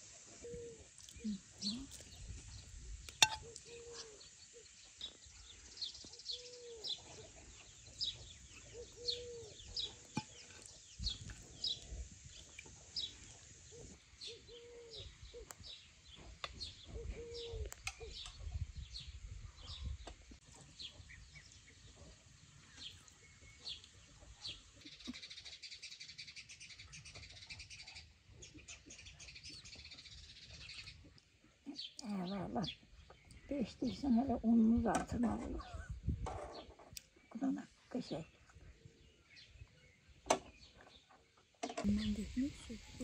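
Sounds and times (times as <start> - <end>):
small birds chirping: 0.1 - 43.0.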